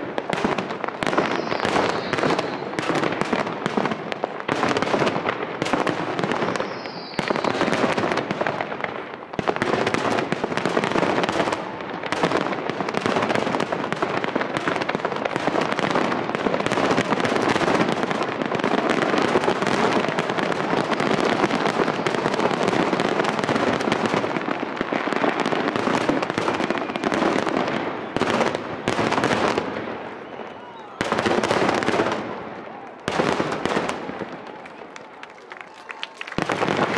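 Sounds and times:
fireworks bursting: 0.0 - 36.9
falling whistle: 1.2 - 2.8, 6.5 - 7.7, 30.1 - 31.1.

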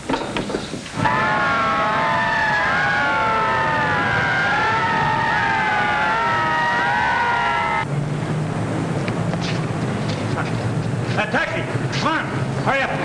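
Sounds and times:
fire engine sirens wailing: 1.0 - 7.9.

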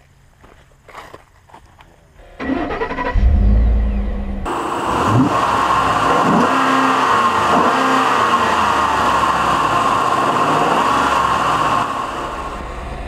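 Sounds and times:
pickup truck engine revving: 2.4 - 13.0.

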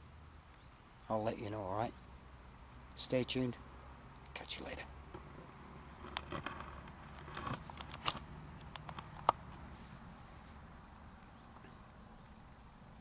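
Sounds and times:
faint background noise: 0.0 - 13.0
camera clicks and knocks: 6.0 - 9.4.

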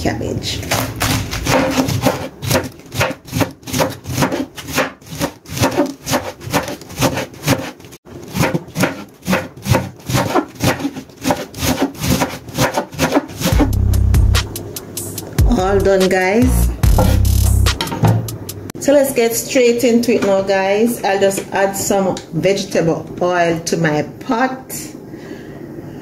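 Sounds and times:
knife slicing cabbage on board: 0.6 - 13.6.

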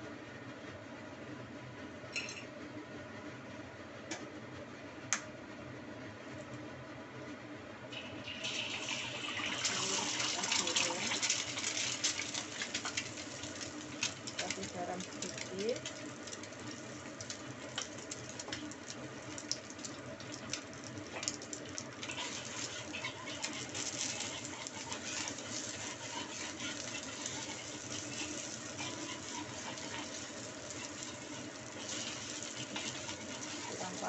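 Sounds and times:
egg sizzling in a wok: 7.9 - 34.0
metal spatula scraping wok: 22.0 - 34.0.

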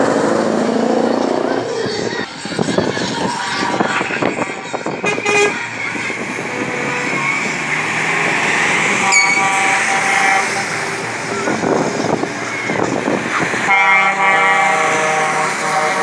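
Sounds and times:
lorry diesel engines passing: 0.0 - 16.0
truck horn blowing: 5.0 - 5.6, 8.8 - 11.4, 13.6 - 16.0.

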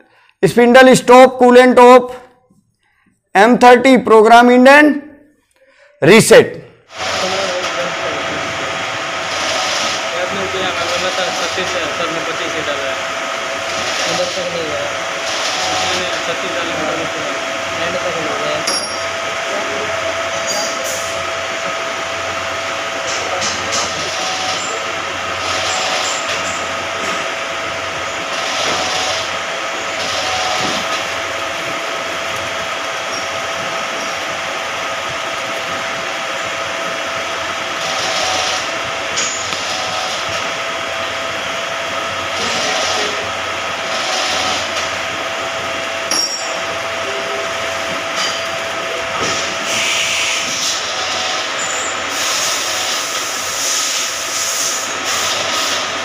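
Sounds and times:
lathe machine hum with whine: 6.8 - 56.0
high hiss bursts: 49.6 - 50.5.

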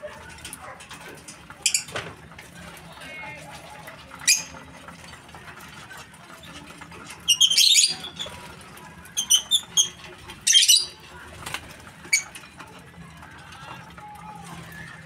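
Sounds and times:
lovebirds chirping shrilly: 7.3 - 8.4, 9.2 - 11.0.

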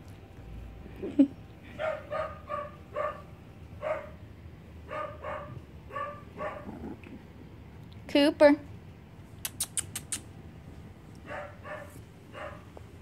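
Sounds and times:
puppy yapping: 1.8 - 4.2, 4.9 - 6.7, 11.2 - 12.7.

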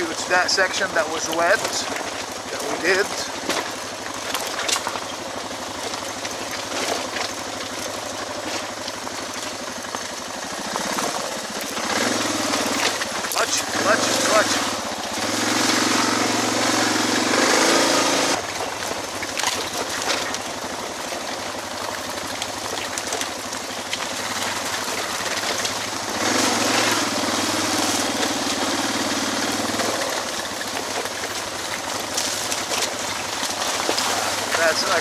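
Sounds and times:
motorcycle engine running: 0.0 - 35.0.

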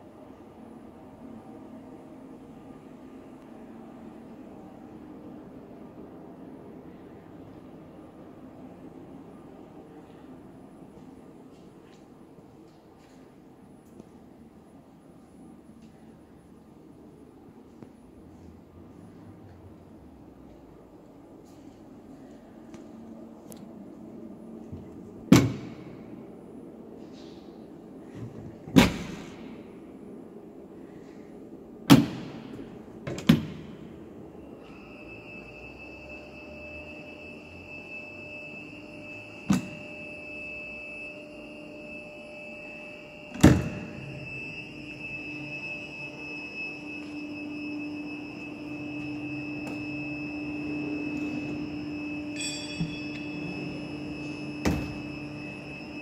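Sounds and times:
high-pitched machine whine: 33.7 - 56.0
sharp metallic clanks: 52.4 - 53.6.

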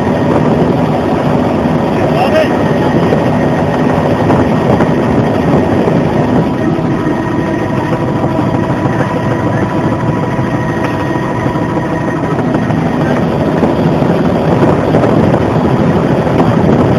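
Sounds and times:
helicopter engine and rotor: 0.0 - 16.9.

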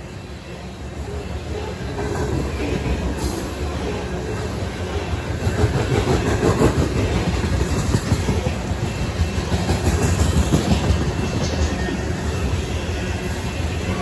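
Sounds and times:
freight train wheels rumbling on rail: 0.0 - 14.0
rail cars clicking and clanking: 0.0 - 14.0.

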